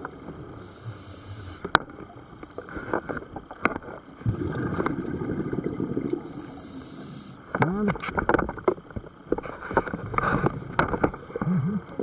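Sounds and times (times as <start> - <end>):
regulator hissing inhalation: 0.6 - 1.7, 6.2 - 7.5
exhaled bubbles burbling: 4.2 - 6.5.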